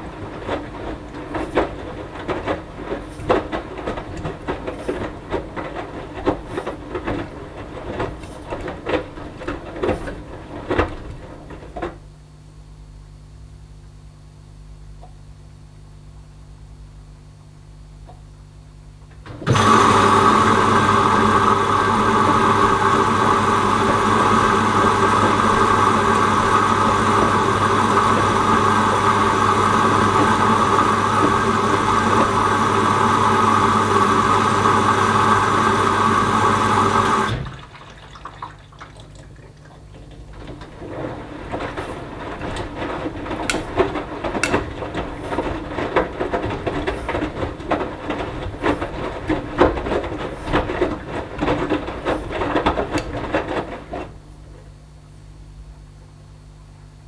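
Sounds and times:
water sloshing in drum: 0:00.0 - 0:12.0, 0:36.7 - 0:54.2
washing machine hum: 0:00.0 - 0:57.0.

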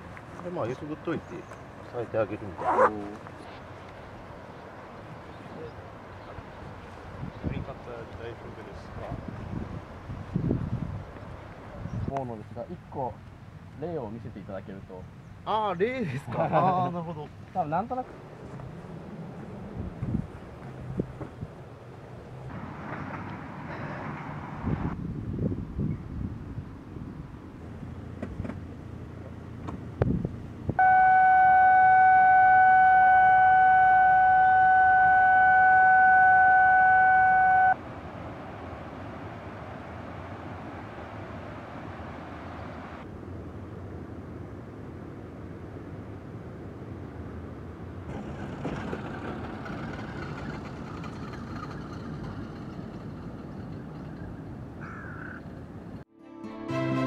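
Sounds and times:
low outdoor rumble: 0:00.0 - 0:56.1
loud steady horn tone: 0:30.8 - 0:37.8.

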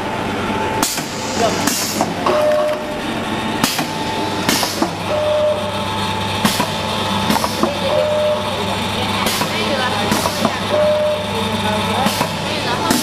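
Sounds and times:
packaging machine hum: 0:00.0 - 0:13.0.

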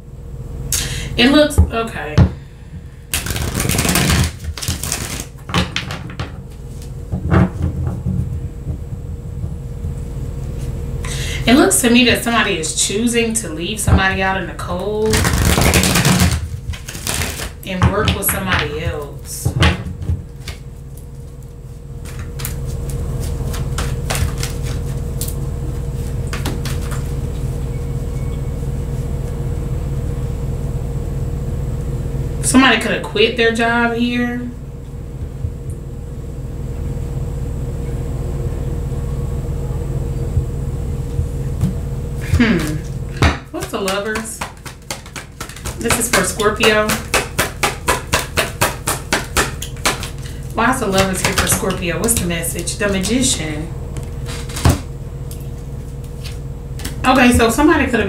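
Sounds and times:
steady low hum: 0:00.0 - 0:58.0
cards being shuffled: 0:03.1 - 0:05.6, 0:15.0 - 0:17.7, 0:22.0 - 0:25.4, 0:26.0 - 0:27.5, 0:43.6 - 0:53.2, 0:54.0 - 0:57.0.

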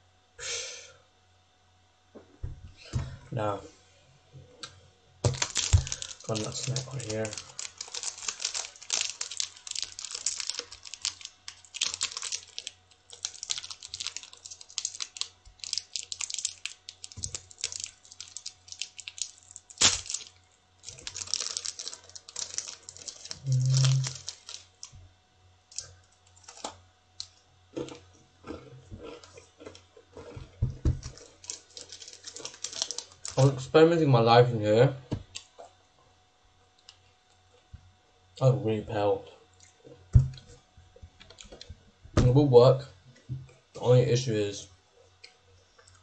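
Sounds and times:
plastic wrapper crinkling: 0:05.2 - 0:25.0, 0:25.7 - 0:27.3, 0:30.9 - 0:33.7
short low hum: 0:23.3 - 0:25.1.

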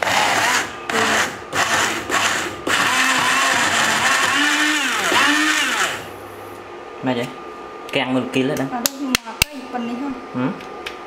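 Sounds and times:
cup blender motor chopping food: 0:00.0 - 0:06.1.

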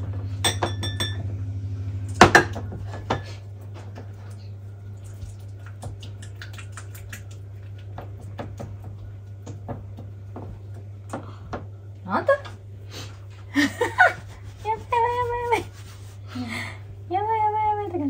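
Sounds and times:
steady low hum: 0:00.0 - 0:18.0
dishes and utensils clattering: 0:00.4 - 0:01.2.

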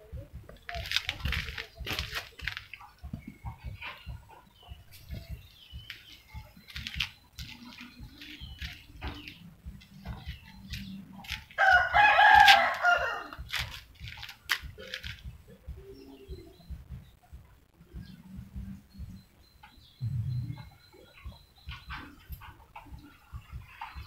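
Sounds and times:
rooster crowing: 0:11.6 - 0:13.4
faint high chirps: 0:15.5 - 0:24.0.

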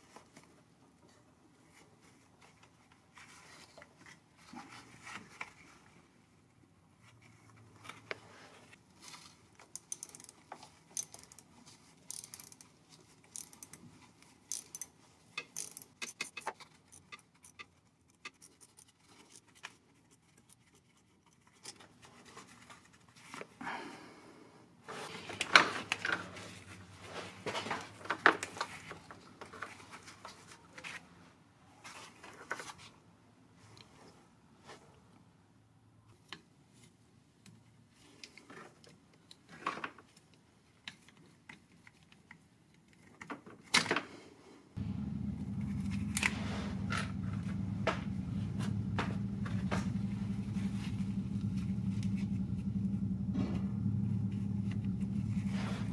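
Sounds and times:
tool clicking on metal line: 0:09.7 - 0:11.5, 0:14.5 - 0:18.9.

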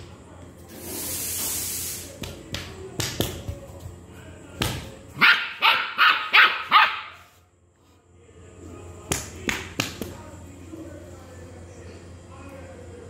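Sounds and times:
dog barking: 0:05.2 - 0:07.3.

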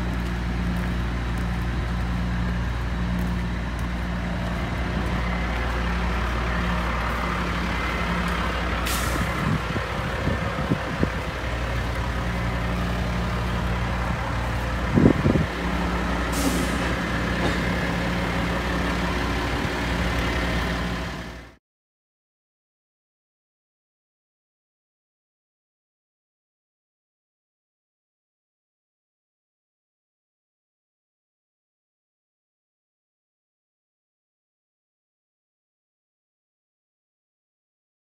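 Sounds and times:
diesel engines running: 0:00.0 - 0:21.6
air-brake hisses: 0:08.8 - 0:09.4, 0:16.3 - 0:17.8.

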